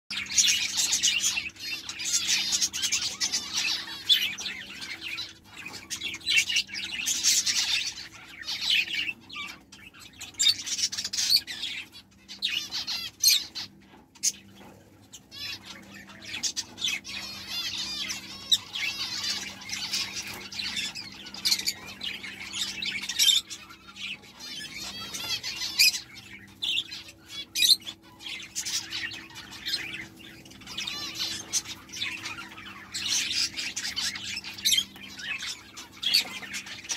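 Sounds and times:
finches chirping: 0.1s - 36.9s.

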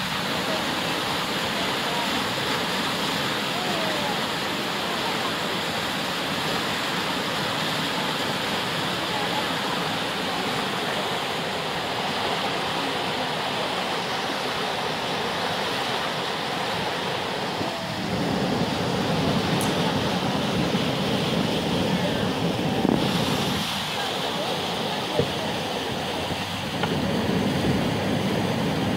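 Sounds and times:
rushing whitewater rapids: 0.0s - 28.9s.

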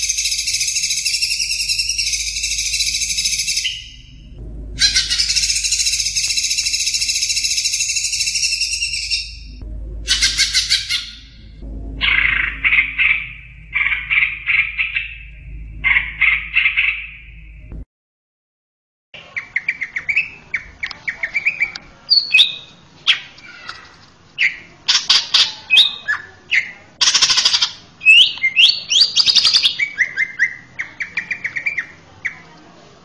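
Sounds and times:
bird singing varied song: 0.0s - 17.7s, 19.2s - 32.4s.

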